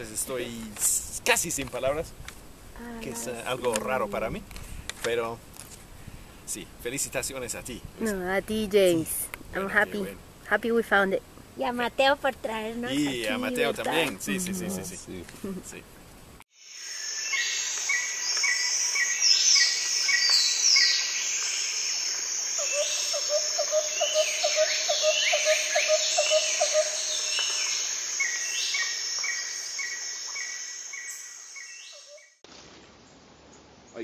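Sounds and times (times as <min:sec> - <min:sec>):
forest birds calling: 0:16.5 - 0:34.0.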